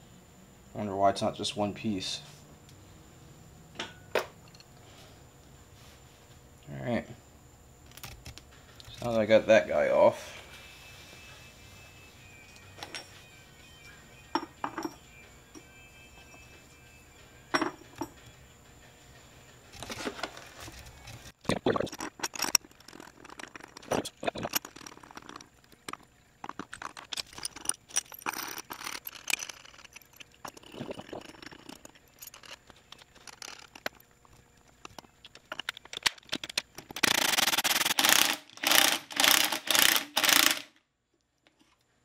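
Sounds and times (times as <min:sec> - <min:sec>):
metal clinks and taps: 0:14.3 - 0:16.4, 0:17.5 - 0:18.3, 0:21.9 - 0:37.0
loud tool noise: 0:36.9 - 0:40.7.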